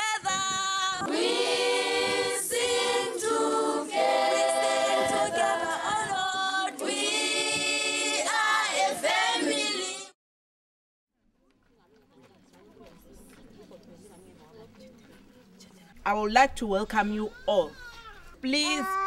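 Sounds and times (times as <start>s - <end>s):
children's choir singing: 0.9s - 10.2s.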